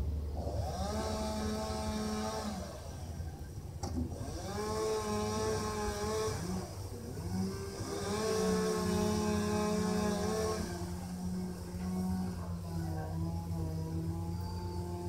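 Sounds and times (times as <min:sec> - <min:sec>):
chainsaw cutting wood: 0:00.3 - 0:15.0.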